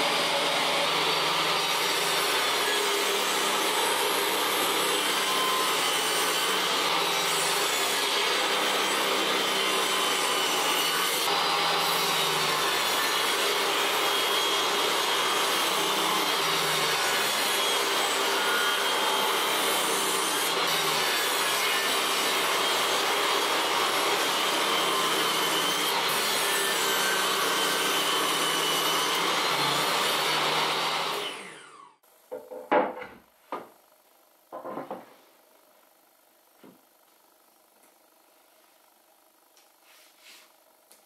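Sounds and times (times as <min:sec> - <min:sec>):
saw motor hum: 0:00.0 - 0:32.6
table saw cutting wood: 0:00.0 - 0:32.6
boards knocking on bench: 0:32.3 - 0:33.7, 0:34.5 - 0:35.1.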